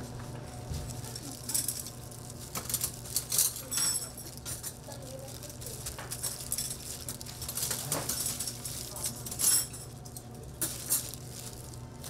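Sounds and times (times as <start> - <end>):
utensils and containers clinking: 0.9 - 12.0.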